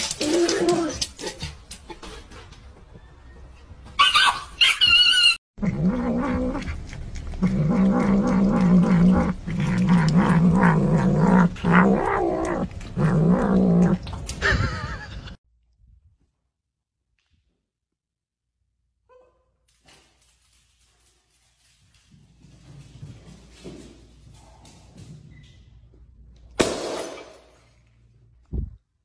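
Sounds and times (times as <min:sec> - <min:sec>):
cat growling: 0:05.6 - 0:14.4.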